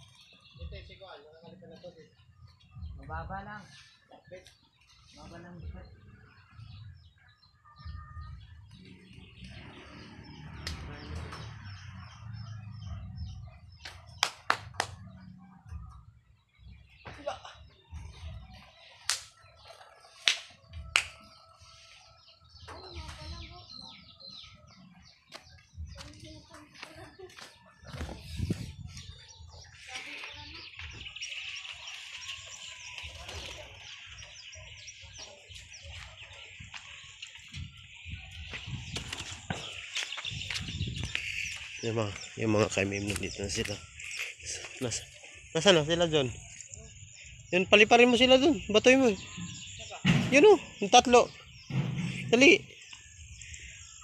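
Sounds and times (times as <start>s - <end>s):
birds chirping: 0.0s - 54.0s
sharp claps: 10.6s - 10.9s, 13.8s - 15.1s, 19.0s - 19.4s, 20.2s - 21.2s
bird chirps: 27.7s - 54.0s
wind rumble: 37.5s - 41.5s.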